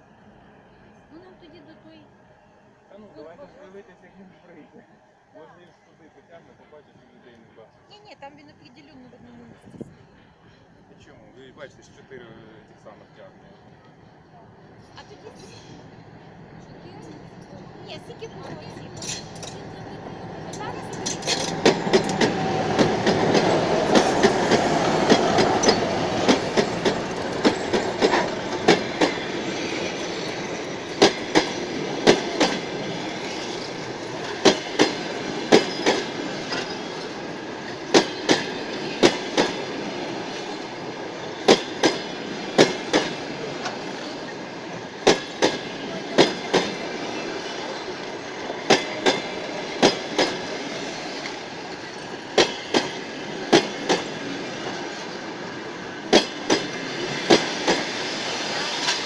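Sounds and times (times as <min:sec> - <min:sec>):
locomotive rumble: 0:08.0 - 0:59.0
train wheels clacking on rail joints: 0:16.9 - 0:55.2, 0:56.0 - 0:59.0.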